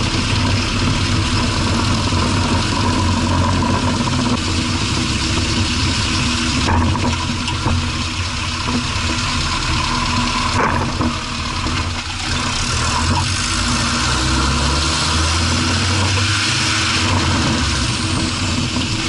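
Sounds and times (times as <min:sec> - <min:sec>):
car engine running: 0:00.0 - 0:19.0
road noise: 0:00.0 - 0:19.0.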